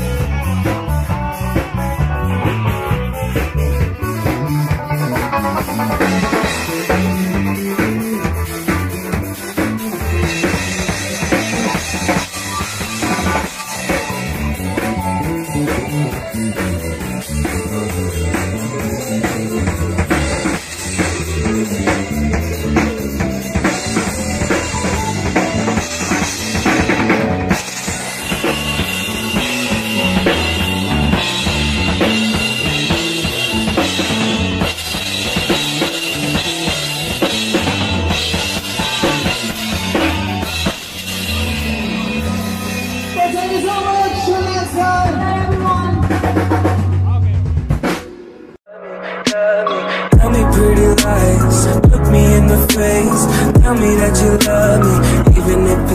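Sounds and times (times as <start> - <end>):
electronic keyboard: 0.0 - 46.7, 48.7 - 55.9
bass guitar: 0.0 - 48.1, 50.1 - 55.9
drum kit steady beat: 0.0 - 48.2, 50.1 - 55.9.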